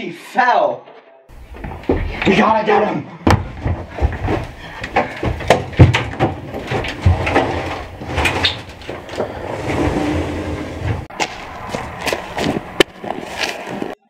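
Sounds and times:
knocks and thumps: 0:01.3 - 0:02.3, 0:03.2 - 0:09.4
hurried footsteps: 0:01.3 - 0:02.6, 0:03.2 - 0:09.4
front door opening: 0:03.3 - 0:11.1.

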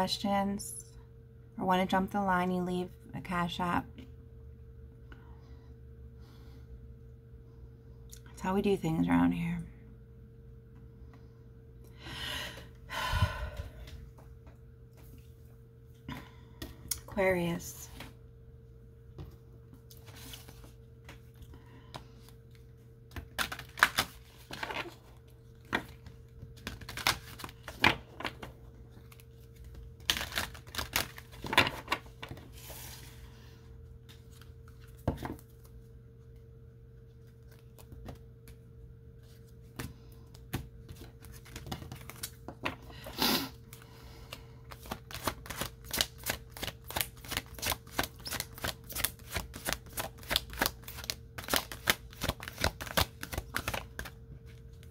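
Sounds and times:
faint steady hum: 0:00.0 - 0:54.9
deck of cards shuffling: 0:44.7 - 0:54.9.

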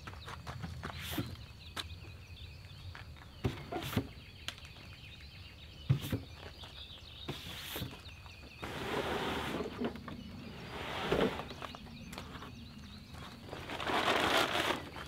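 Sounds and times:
birds: 0:00.0 - 0:15.0
insects: 0:00.0 - 0:15.0
rustling: 0:13.2 - 0:15.0.

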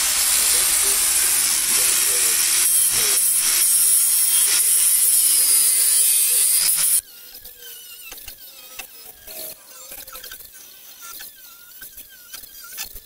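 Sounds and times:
angle grinder grinding steel: 0:00.0 - 0:13.0.

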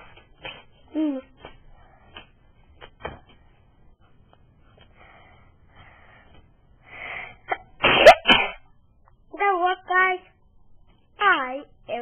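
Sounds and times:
faint breaths close to microphone: 0:01.6 - 0:02.7, 0:04.6 - 0:07.5.

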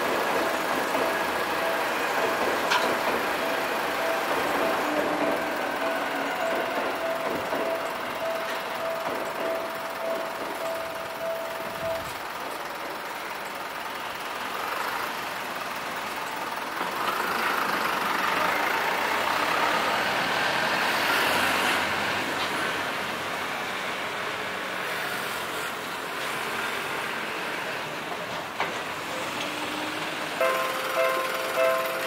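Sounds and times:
steady tone: 0:00.3 - 0:12.2
cars driving past: 0:16.8 - 0:28.0.

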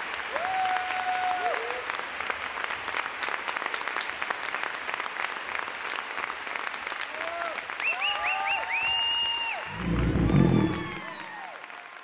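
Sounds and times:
audience applauding: 0:00.0 - 0:12.0
gliding pitched tones: 0:09.7 - 0:11.3.

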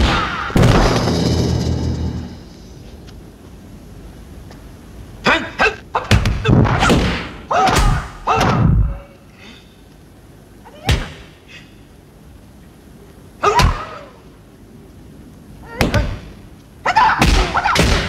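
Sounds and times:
punch and kick impacts: 0:00.0 - 0:02.4
fighters shouting: 0:16.8 - 0:18.0.

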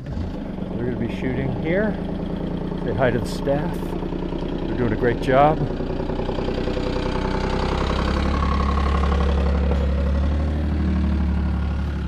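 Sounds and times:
vehicle engine idling: 0:00.0 - 0:12.0.

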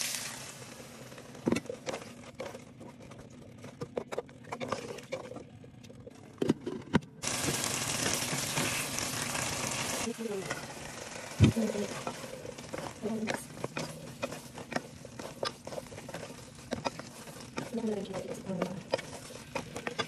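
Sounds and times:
curry sizzling: 0:00.0 - 0:01.9, 0:07.2 - 0:20.0
wooden spatula knocking pot: 0:11.6 - 0:20.0.

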